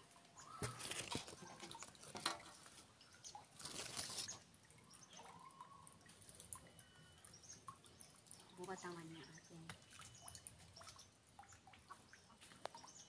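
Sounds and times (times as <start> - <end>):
leaves rustling against phone: 0.5 - 4.4.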